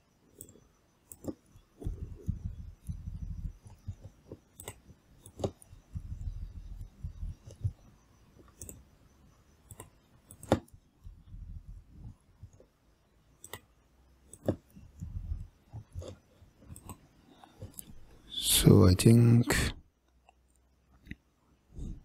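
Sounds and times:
faint low desk noises: 0:00.0 - 0:22.0
computer mouse clicks: 0:00.3 - 0:09.0, 0:09.6 - 0:11.2, 0:13.4 - 0:18.2.

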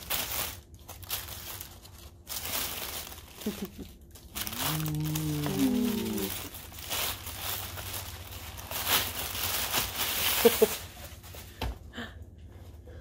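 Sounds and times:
tissue paper rustling and crinkling: 0:00.0 - 0:11.6
person humming: 0:04.4 - 0:06.5.

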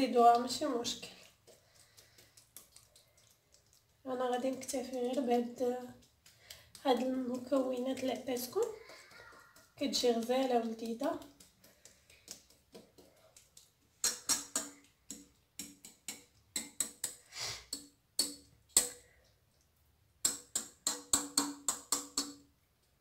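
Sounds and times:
spoon tapping and scraping metal pan: 0:04.3 - 0:19.2, 0:20.2 - 0:22.5.

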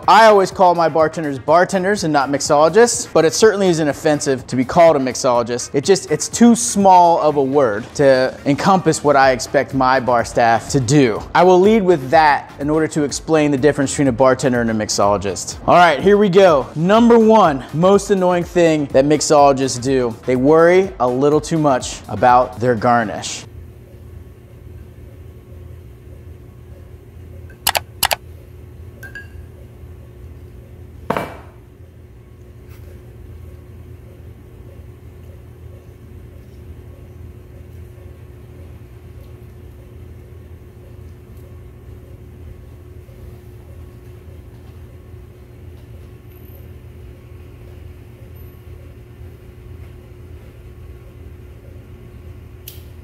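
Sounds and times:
low room hum: 0:00.0 - 0:53.0
sharp clicks: 0:27.5 - 0:28.2.

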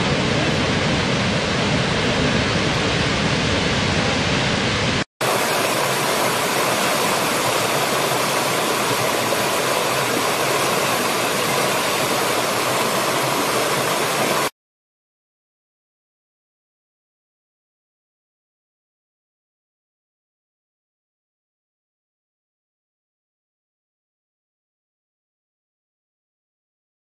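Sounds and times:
waterfall roaring: 0:00.0 - 0:14.5.

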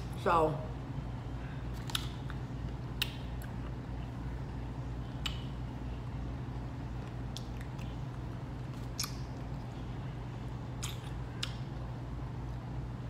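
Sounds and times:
person chewing with wet smacks: 0:01.7 - 0:04.2, 0:05.0 - 0:10.0, 0:10.7 - 0:11.9.

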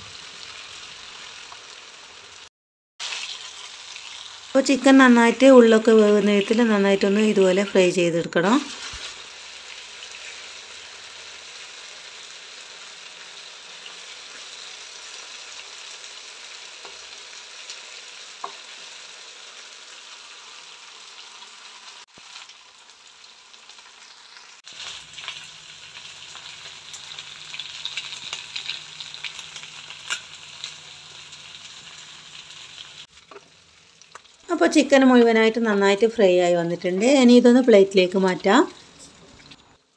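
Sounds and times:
chicken sizzling in a pan: 0:00.0 - 0:07.8, 0:08.4 - 0:35.4.

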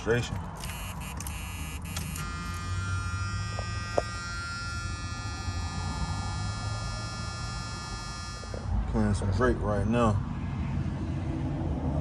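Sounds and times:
electrical buzz with high whine: 0:00.6 - 0:08.9.

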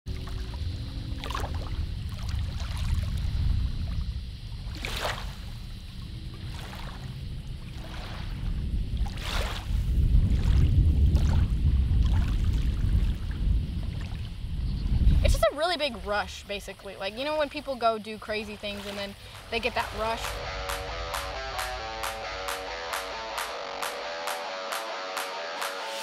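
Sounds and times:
small waves lapping on a lake: 0:00.1 - 0:20.6
wind rumbling on microphone: 0:00.1 - 0:22.8.

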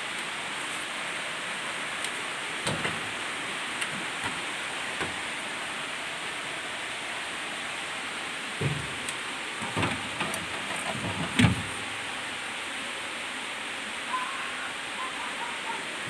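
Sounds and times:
rushing hiss: 0:00.0 - 0:16.0
refrigerator shelves knocking: 0:08.6 - 0:09.0, 0:09.6 - 0:11.8.

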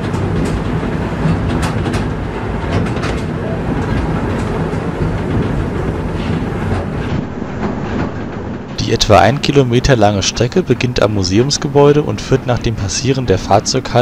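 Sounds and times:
locomotive hum: 0:00.0 - 0:14.0
wheels clicking on track: 0:00.0 - 0:14.0.

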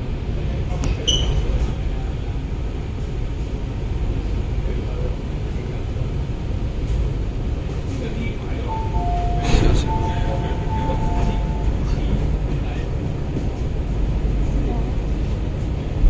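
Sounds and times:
train rumbling on rails: 0:00.0 - 0:16.0
brief high squeak: 0:01.0 - 0:01.5.

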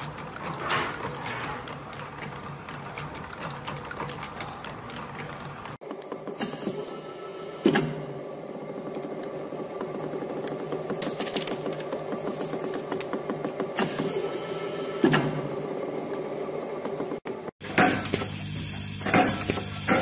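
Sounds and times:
machine humming with fast rattle: 0:00.0 - 0:20.0.

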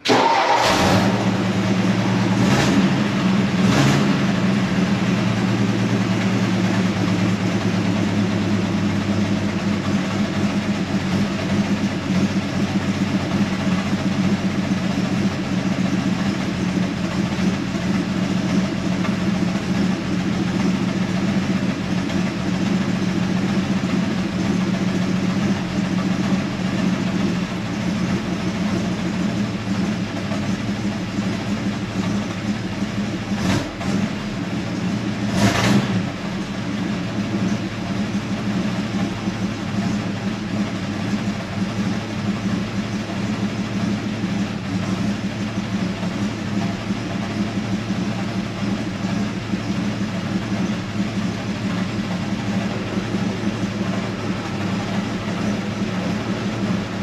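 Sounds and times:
car engine idling: 0:00.0 - 0:57.0.

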